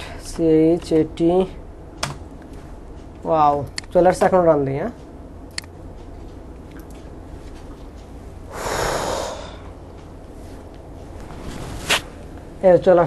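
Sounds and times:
low steady hum: 0.0 - 13.0
person exhaling sharply through nose: 8.5 - 9.7.

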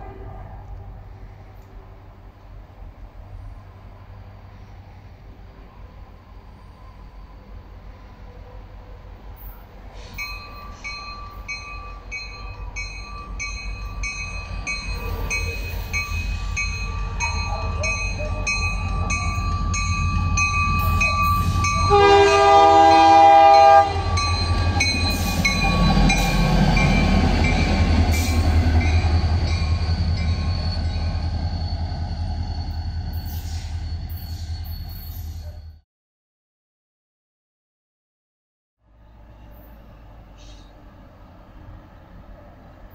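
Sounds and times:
locomotive air horn blast: 0.0 - 1.0, 21.5 - 24.3
locomotive engine rumble: 0.0 - 35.8.

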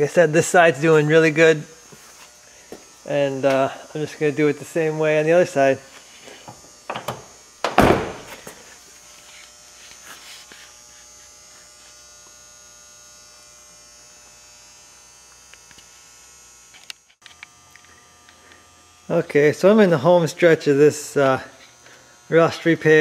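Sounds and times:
electrical hum with high whine: 0.0 - 23.0
truck door thud: 6.9 - 8.4.

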